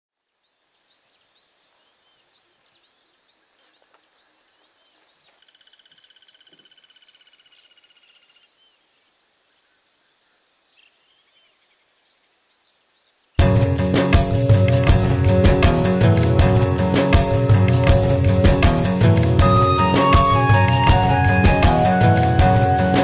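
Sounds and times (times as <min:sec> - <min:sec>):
trill: 0:13.4 - 0:23.0.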